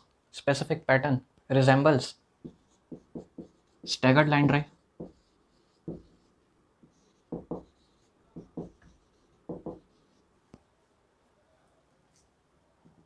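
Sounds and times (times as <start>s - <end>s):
marker writing on whiteboard: 2.4s - 10.3s.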